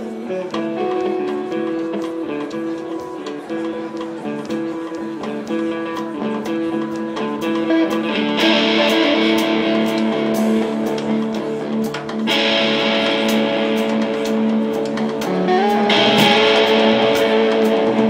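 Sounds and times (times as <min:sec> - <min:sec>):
electric guitars: 0:00.0 - 0:18.0
drum kit hits: 0:12.4 - 0:18.0.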